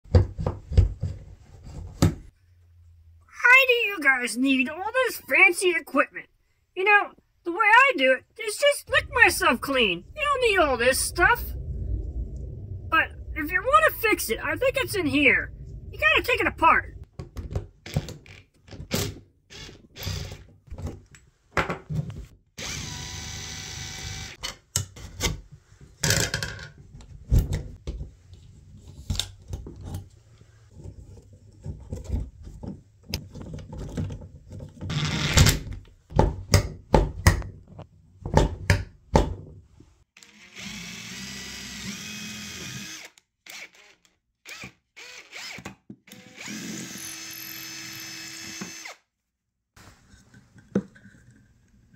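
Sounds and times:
cordless drill whirring: 0:19.5 - 0:20.4, 0:22.6 - 0:24.4, 0:40.2 - 0:49.1.

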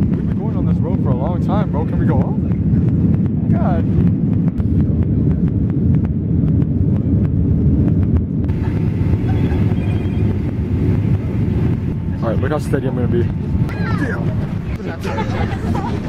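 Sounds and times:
jet engine rumble and rushing air: 0:00.0 - 0:16.0.

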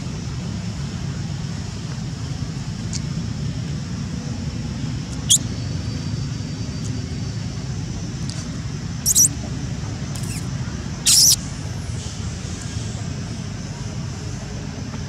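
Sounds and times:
baby monkey squeaking: 0:09.0 - 0:09.3, 0:10.2 - 0:10.5, 0:11.1 - 0:11.4.

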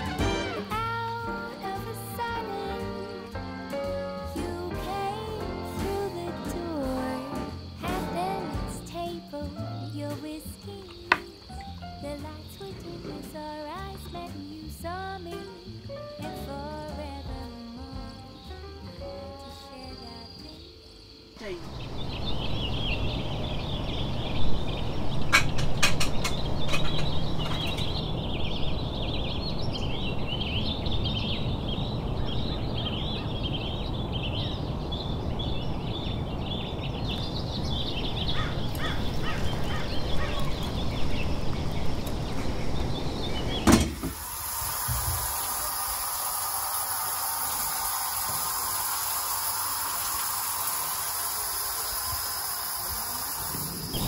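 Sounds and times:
shower water spray hissing: 0:00.0 - 0:11.5, 0:43.5 - 0:54.0
birds chirping: 0:17.6 - 0:54.0.

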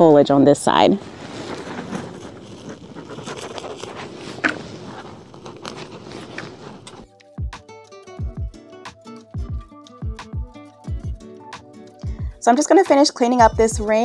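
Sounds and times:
leaves crackling: 0:01.0 - 0:07.0
dry leaves and mulch rustling: 0:01.1 - 0:06.9.

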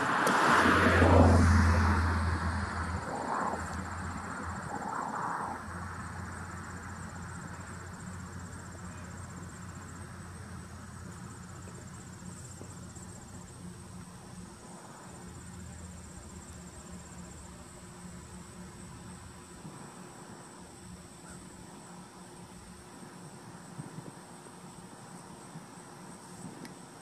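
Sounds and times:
low rumble: 0:00.0 - 0:08.6
insects trilling: 0:00.0 - 0:27.0
low steady hum: 0:00.0 - 0:27.0.

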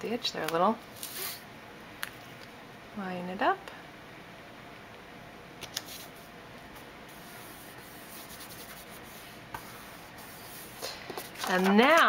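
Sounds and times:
paper rubbing on paper: 0:07.1 - 0:11.8.

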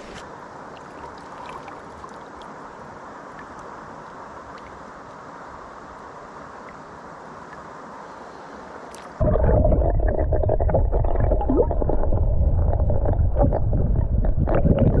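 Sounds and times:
stream hiss: 0:00.0 - 0:09.2
underwater stream rushing: 0:09.2 - 0:15.0.

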